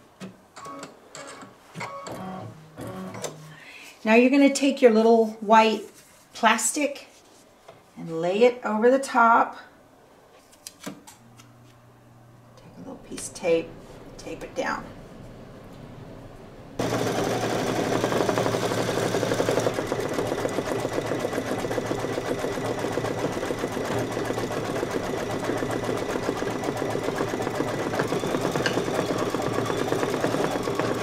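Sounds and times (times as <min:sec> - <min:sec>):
embroidery machine stitching: 0:16.8 - 0:31.0.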